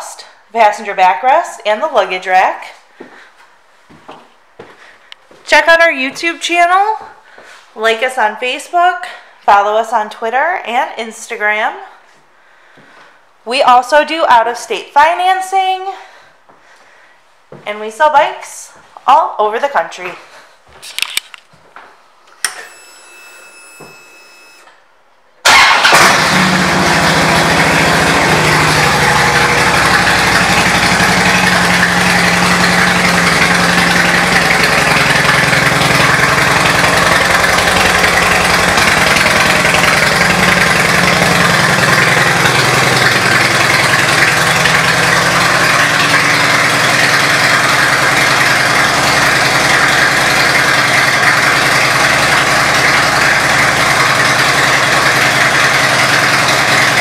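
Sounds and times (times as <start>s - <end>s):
motorcycle engine starting and idling: 25.4s - 57.0s.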